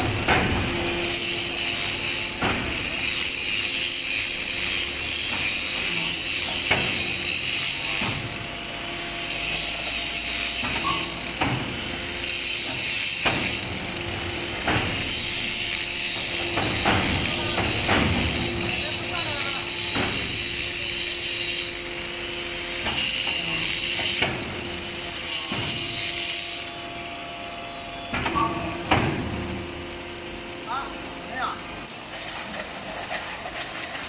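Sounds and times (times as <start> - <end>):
brick machine hum and hiss: 0.0 - 34.0
press knocks and clanks: 16.2 - 18.6.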